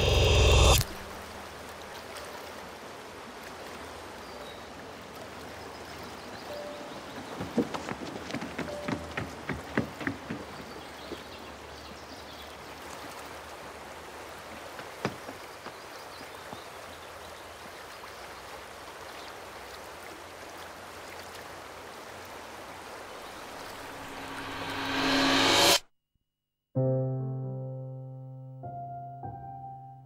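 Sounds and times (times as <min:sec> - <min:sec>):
stream rushing over rocks: 0:00.8 - 0:24.1.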